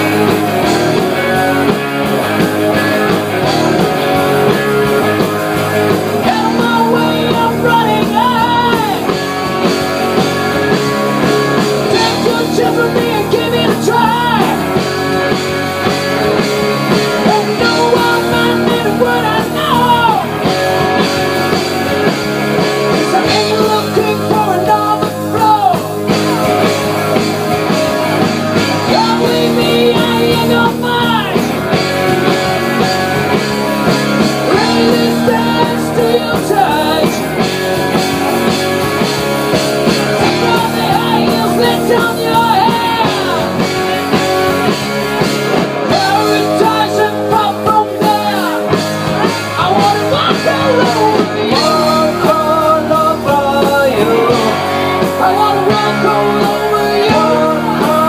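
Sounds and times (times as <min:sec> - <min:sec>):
live rock band playing: 0:00.0 - 0:58.0
person singing: 0:03.0 - 0:22.0, 0:22.8 - 0:58.0.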